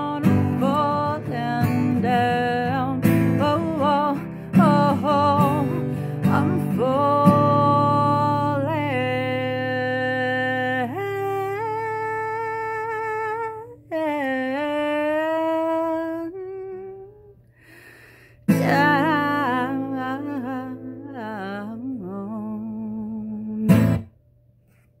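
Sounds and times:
strummed acoustic guitar: 0.0 - 13.6, 18.5 - 22.6, 23.5 - 24.1
woman humming: 10.7 - 17.4, 18.5 - 23.8.

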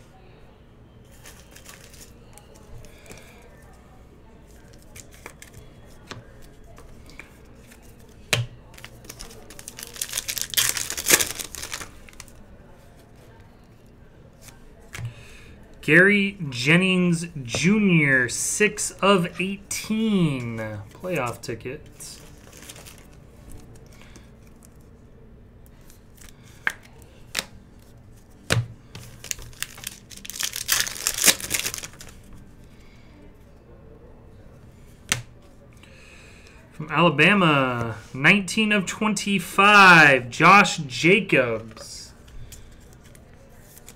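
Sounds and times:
foil pack tearing and crinkling: 8.8 - 12.3, 29.2 - 32.2.

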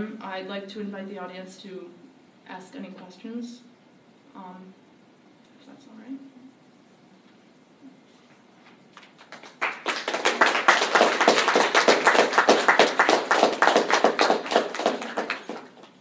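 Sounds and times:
audience applauding: 9.0 - 16.0.

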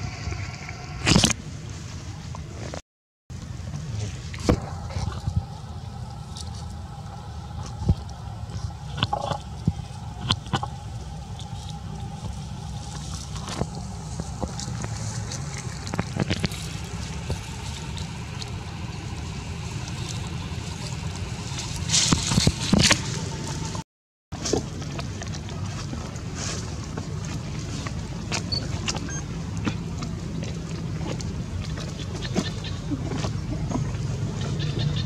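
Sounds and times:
low rumble: 0.0 - 23.8
monkey chewing and slurping: 3.8 - 23.6, 24.4 - 34.6.

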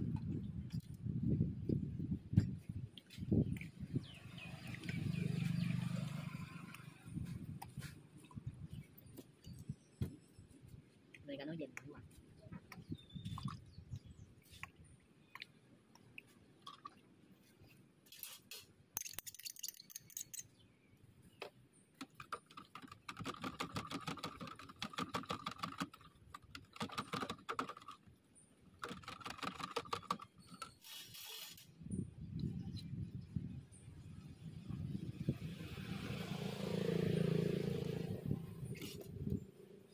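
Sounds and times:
short hissing bursts: 30.8 - 31.7.

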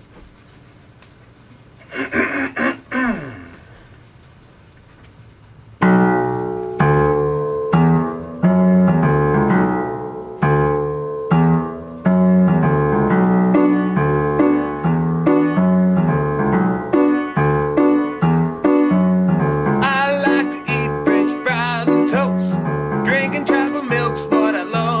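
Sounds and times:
keyboard piano chords: 5.8 - 25.0.

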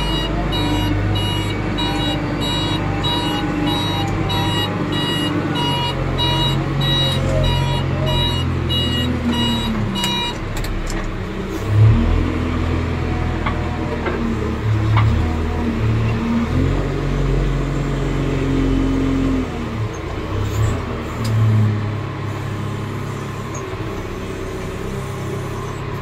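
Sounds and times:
reversing alarm beeping: 0.0 - 10.4
diesel engine running: 0.0 - 26.0.

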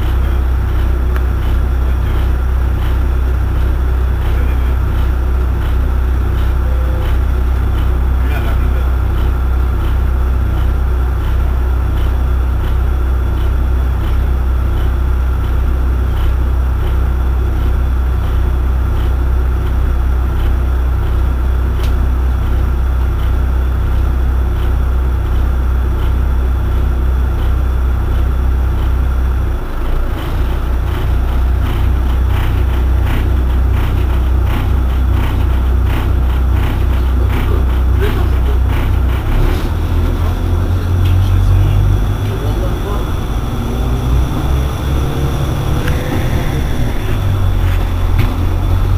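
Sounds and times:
high whine: 0.0 - 16.5, 29.0 - 48.9
bus engine idling: 0.0 - 48.9.

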